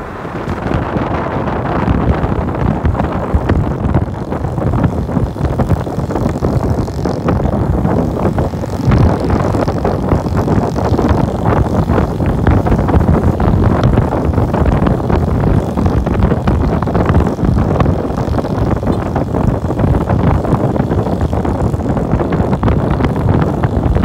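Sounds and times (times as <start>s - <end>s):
car engine: 0.0s - 2.6s
wind buffeting microphone: 0.0s - 24.0s.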